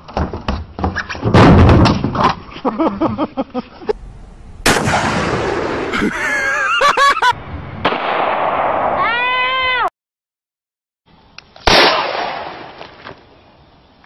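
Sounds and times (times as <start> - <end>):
loud gunshot: 4.6 - 6.1, 7.8 - 9.0, 11.7 - 12.8
people yelling: 9.0 - 9.9
person screaming: 9.0 - 9.9.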